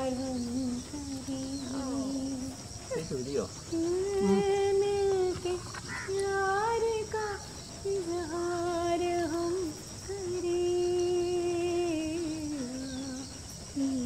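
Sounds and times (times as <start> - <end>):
person humming a melody: 0.0 - 2.8, 3.7 - 14.0.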